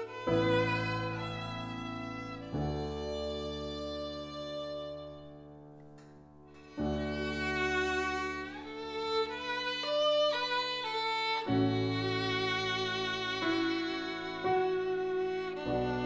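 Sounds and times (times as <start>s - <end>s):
piano chords: 0.0s - 16.0s
violin melody: 0.0s - 16.0s.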